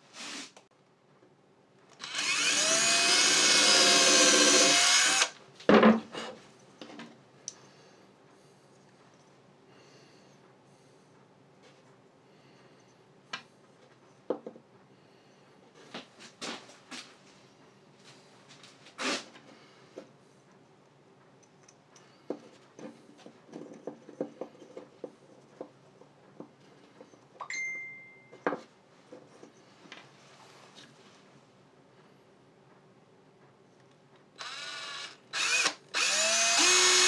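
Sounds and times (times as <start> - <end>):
small parts clicking and knocking: 21.4 - 27.4
steady high tone: 27.4 - 28.4.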